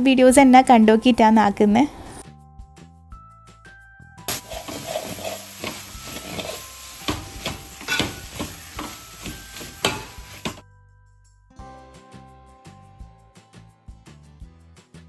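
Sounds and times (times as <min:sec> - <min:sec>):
metal spoon scraping pot: 0:04.3 - 0:10.6
onions sizzling in oil: 0:04.3 - 0:10.6.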